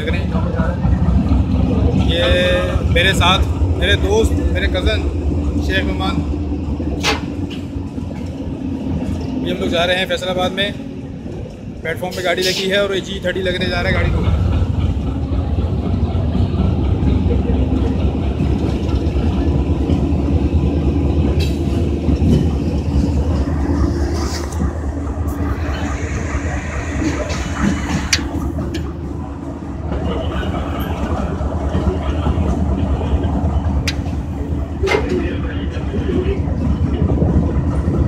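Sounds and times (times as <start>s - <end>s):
locomotive engine hum: 0.0s - 38.0s.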